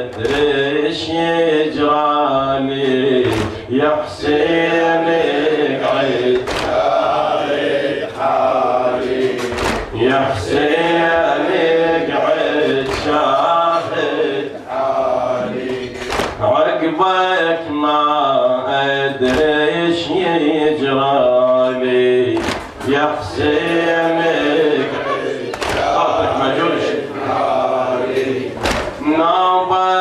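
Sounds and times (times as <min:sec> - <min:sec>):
man chanting a lament: 0:00.0 - 0:09.0, 0:09.9 - 0:30.0
congregation voices: 0:00.0 - 0:30.0
chest beating slaps: 0:03.2 - 0:03.7, 0:06.3 - 0:06.9, 0:09.1 - 0:10.0, 0:12.8 - 0:13.5, 0:15.9 - 0:16.4, 0:22.3 - 0:23.0, 0:25.5 - 0:26.0, 0:28.6 - 0:29.1.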